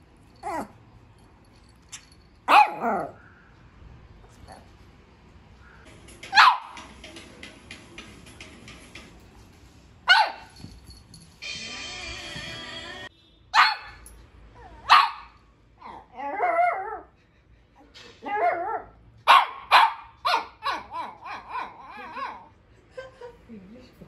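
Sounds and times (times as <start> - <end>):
puppy whining: 0.4 - 0.8
puppy barking: 2.5 - 3.2, 6.3 - 6.9, 10.1 - 10.6, 13.5 - 14.0, 14.8 - 17.0, 18.3 - 22.5.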